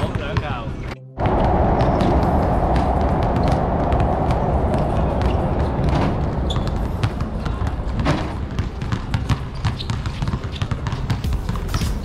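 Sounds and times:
low rumble: 0.9 - 9.6
basketballs bouncing on court: 5.2 - 12.0.

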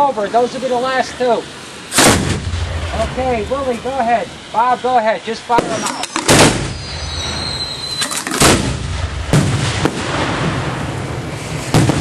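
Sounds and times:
low rumble of fireworks: 1.3 - 12.0
firework booms: 1.9 - 3.8, 5.6 - 12.0.

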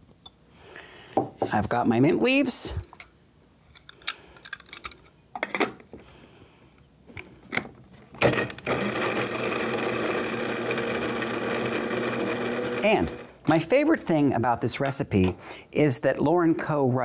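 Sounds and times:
grinder motor running: 8.2 - 13.4.

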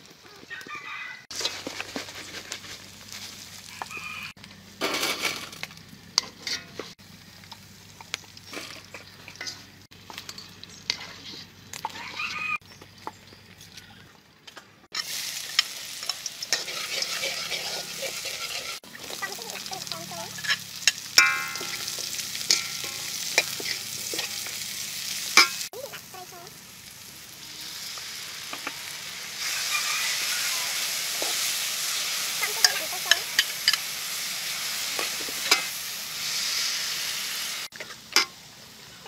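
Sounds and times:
onions sizzling in hot oil: 2.7 - 12.1, 14.9 - 39.0
metal spatula scraping a wok: 6.2 - 7.0, 8.5 - 12.0, 14.9 - 25.7, 30.2 - 38.3.

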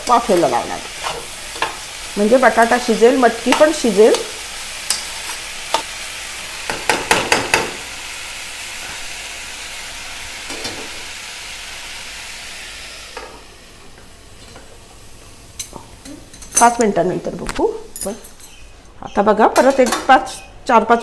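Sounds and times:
steel spoon stirring and scraping: 0.0 - 1.8, 20.1 - 20.6
food sizzling in oil: 0.0 - 18.6.

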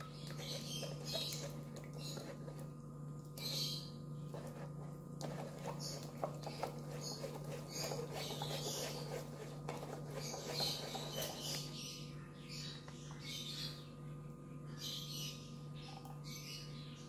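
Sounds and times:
batter squishing through sieve: 0.0 - 11.9.

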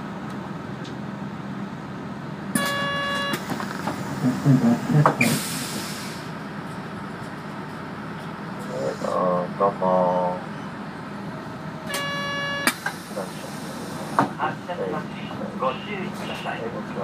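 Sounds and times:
bus engine running: 0.0 - 17.0
buzzer: 2.6 - 3.4, 11.9 - 12.7
compressed-air hiss: 5.2 - 6.3.

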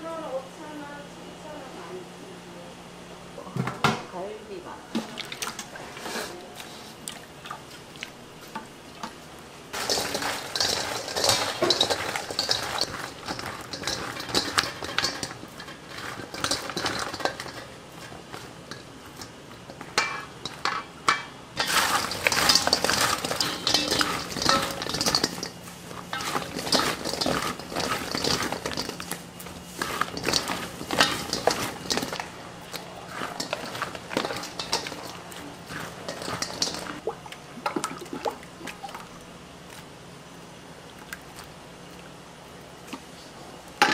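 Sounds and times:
wet stirring and scraping: 4.9 - 39.9
spatula clinking on metal bowl: 9.8 - 29.2, 29.8 - 37.0.

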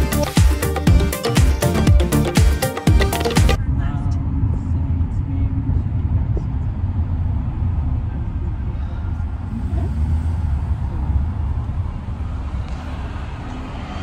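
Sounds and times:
moving vehicle rumble: 3.0 - 14.0.

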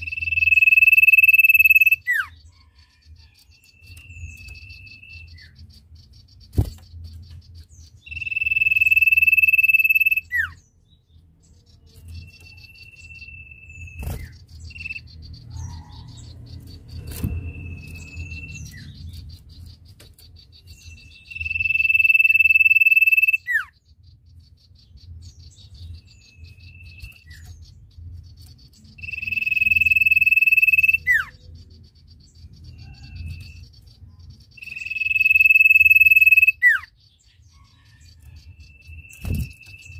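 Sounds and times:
bird singing high whistles: 20.9 - 23.8, 29.0 - 31.4, 34.6 - 36.9.

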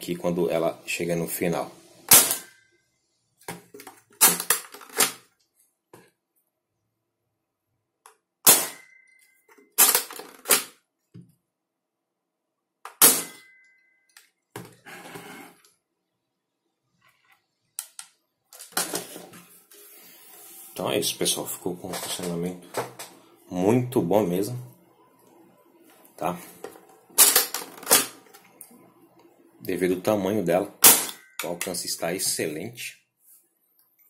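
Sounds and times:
airsoft pistol shots ringing: 2.1 - 2.5, 8.5 - 9.0, 13.0 - 13.5.

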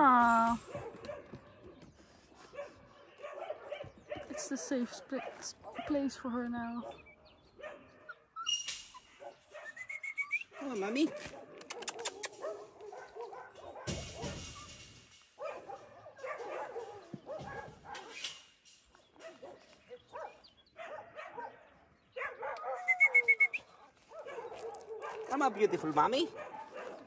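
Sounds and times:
dogs whimpering and whining: 7.9 - 10.6, 22.4 - 23.8
short sharp high chirps: 9.7 - 10.5, 22.8 - 23.7.

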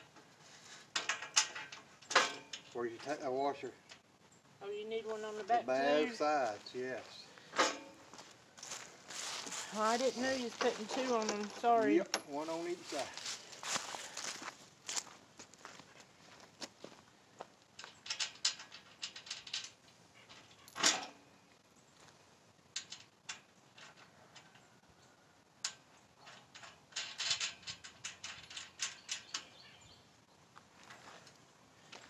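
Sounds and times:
metal bolts and tools clinking: 0.9 - 3.2, 7.6 - 8.0, 11.0 - 12.4, 17.8 - 21.3, 25.6 - 29.7
loud metal clank: 1.0 - 2.7, 7.6 - 8.0.

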